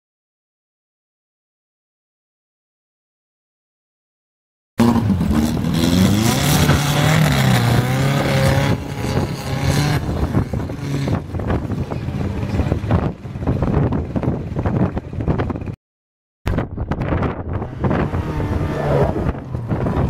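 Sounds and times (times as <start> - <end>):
car engine revving: 4.8 - 13.9, 17.1 - 20.0
wind on microphone: 5.0 - 15.8, 16.5 - 20.0.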